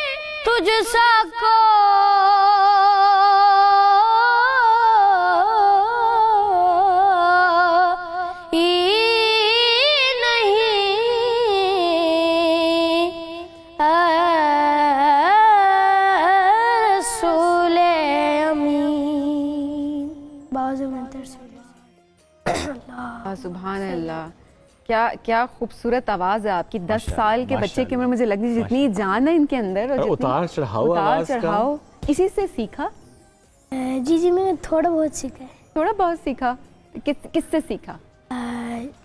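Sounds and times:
boy singing unaccompanied: 0.0 - 21.8.

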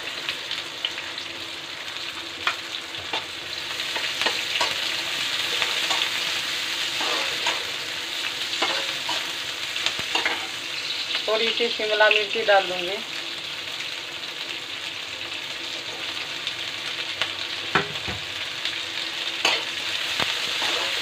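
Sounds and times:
onion sizzling in hot oil: 0.0 - 21.0
metal spatula scraping pan: 6.9 - 7.7, 8.5 - 9.3, 20.5 - 21.0.

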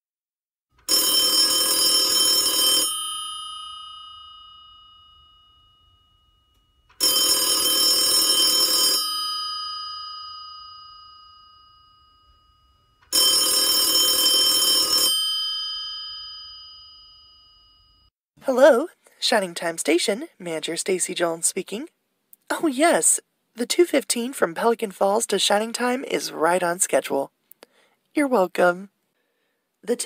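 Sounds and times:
telephone bell ringing: 0.8 - 18.1.

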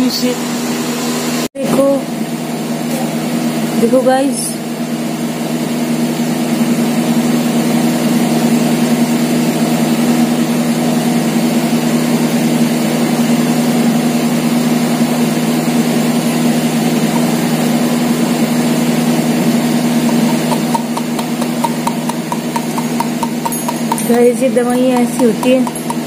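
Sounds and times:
motor humming: 15.7 - 26.0.

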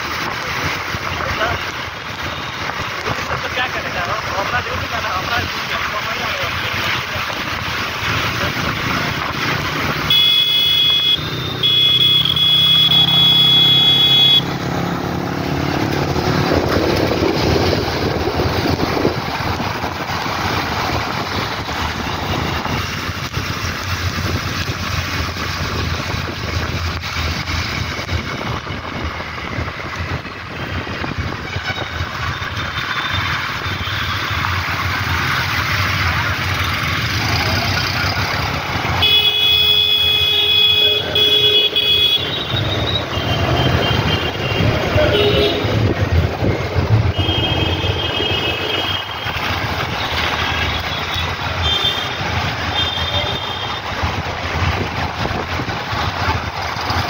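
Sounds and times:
water splashing: 0.0 - 10.1
wind and tyre noise: 0.0 - 57.0
vehicle horn: 10.1 - 14.6, 39.0 - 45.8, 47.1 - 49.2.

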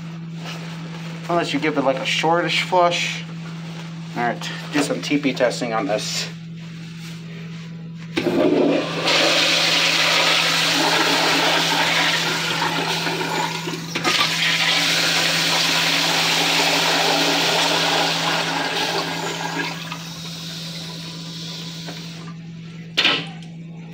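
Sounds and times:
toilet flushing: 8.2 - 22.4
toilet tank refilling: 8.2 - 22.4.

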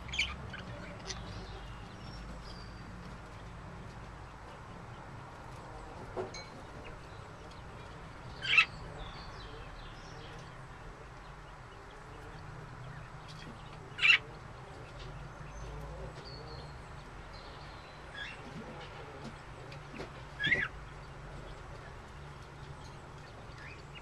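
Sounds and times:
budgerigar calls: 0.0 - 1.8, 8.3 - 9.6, 13.6 - 14.4, 20.4 - 20.8.

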